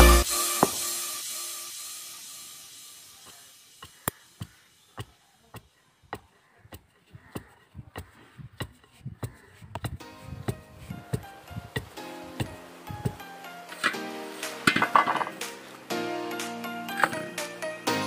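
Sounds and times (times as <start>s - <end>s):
background music: 0.0s - 1.7s, 10.0s - 18.0s
wooden pestle pounding in stone mortar: 3.8s - 13.2s.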